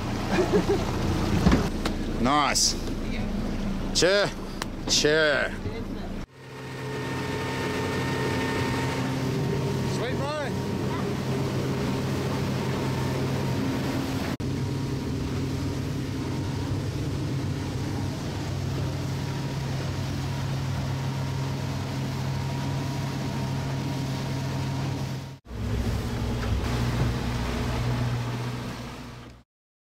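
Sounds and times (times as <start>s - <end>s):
motorboat engine running: 0.0s - 29.4s
water and wind hiss: 6.4s - 29.4s.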